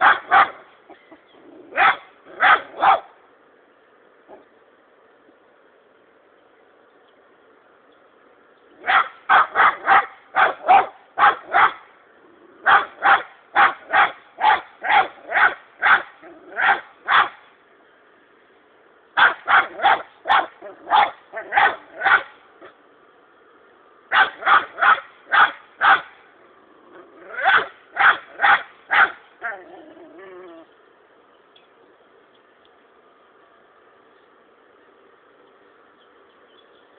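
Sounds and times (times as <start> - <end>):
puppy barking: 0.0 - 3.1, 8.8 - 11.8, 12.6 - 17.4, 19.2 - 22.4, 24.1 - 26.2, 27.2 - 29.6.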